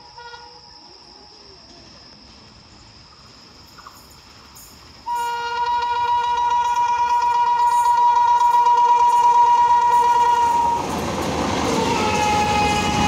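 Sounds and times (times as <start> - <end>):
locomotive horn blast: 5.1 - 10.9, 11.7 - 13.0.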